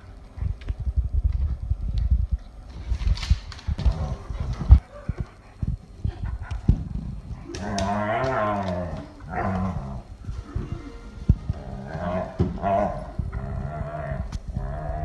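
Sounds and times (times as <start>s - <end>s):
paws scrabbling on wooden floor: 0.4s - 10.7s
dog play growling: 3.7s - 15.0s.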